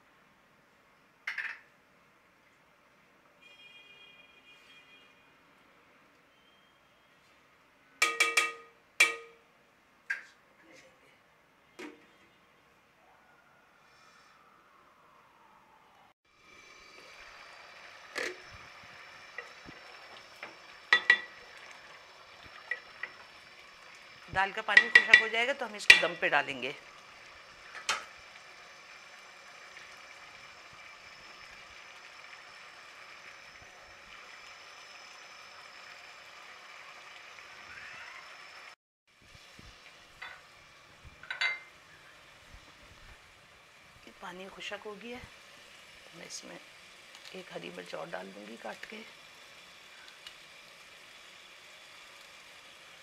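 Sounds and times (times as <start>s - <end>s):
metal spoon clinking on pot: 8.0s - 9.4s, 20.9s - 21.4s, 24.7s - 26.2s, 41.2s - 41.7s
pot bubbling: 16.3s - 53.0s.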